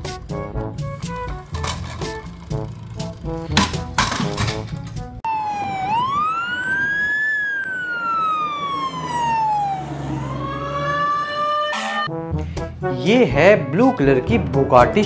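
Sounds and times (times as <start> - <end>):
siren wailing: 5.3 - 12.1.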